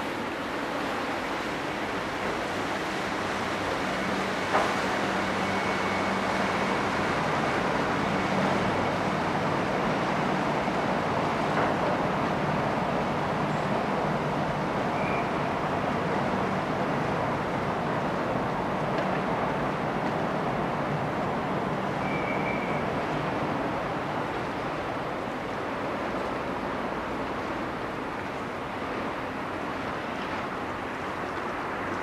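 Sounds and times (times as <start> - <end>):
city traffic rushing: 0.0 - 32.0
train passing on viaduct: 0.0 - 32.0.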